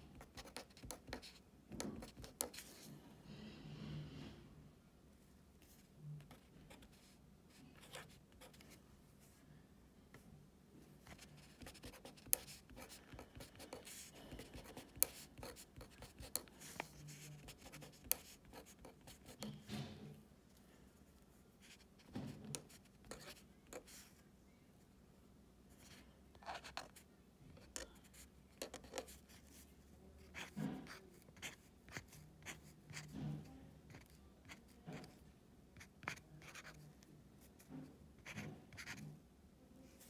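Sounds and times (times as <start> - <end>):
pen scratching on paper: 0.1 - 2.9, 7.7 - 8.8, 11.0 - 19.6, 21.6 - 24.0, 30.2 - 33.3, 33.9 - 35.2, 35.8 - 36.8, 38.2 - 39.1.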